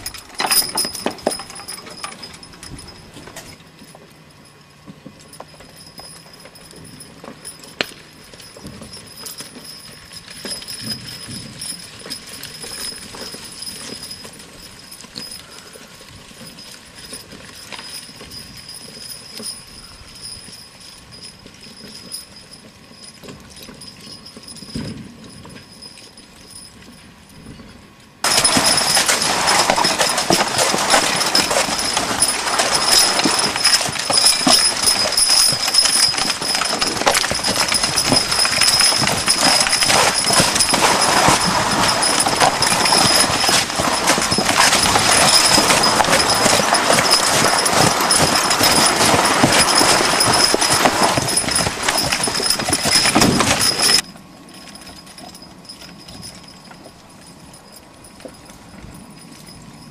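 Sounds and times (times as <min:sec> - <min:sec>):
harness jingling: 0:00.0 - 0:59.9
hooves clopping: 0:00.0 - 0:59.9
vehicle rattling: 0:28.2 - 0:54.1.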